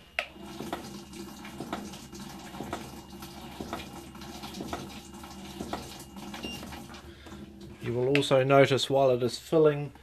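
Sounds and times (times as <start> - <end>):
water rushing into washing machine: 0.2 - 8.0.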